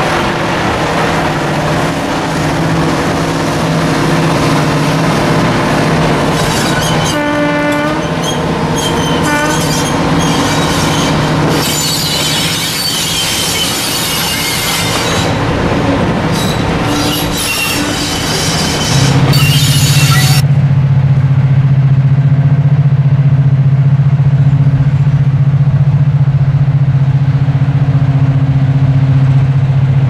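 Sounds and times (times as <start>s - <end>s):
diesel locomotive engine: 0.0s - 30.0s
wheels squealing: 6.3s - 7.2s, 7.9s - 15.4s, 16.3s - 20.4s
locomotive horn: 6.6s - 20.4s.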